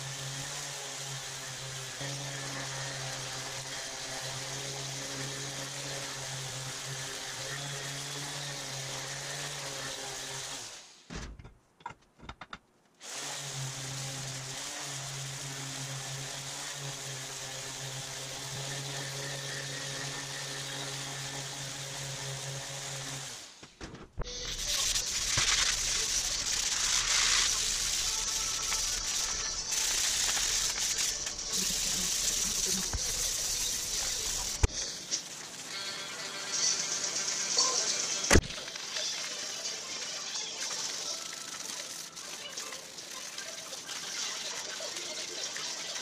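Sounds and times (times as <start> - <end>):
orbital sander on steel: 0.0 - 10.9, 13.0 - 23.6, 24.3 - 38.3.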